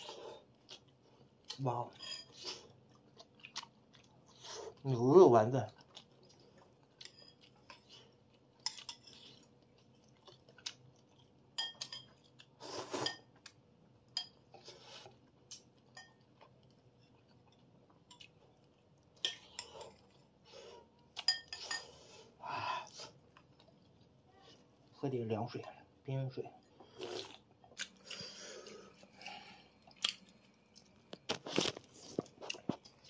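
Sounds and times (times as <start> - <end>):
soft eating noises: 0.0 - 33.0
spoon clinking against bowl: 21.2 - 21.9.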